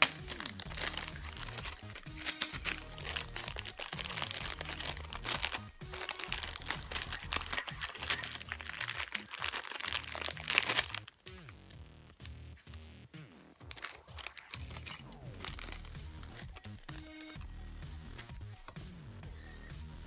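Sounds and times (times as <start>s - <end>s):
plastic bags crinkling: 0.0s - 18.8s
background music: 0.0s - 20.0s.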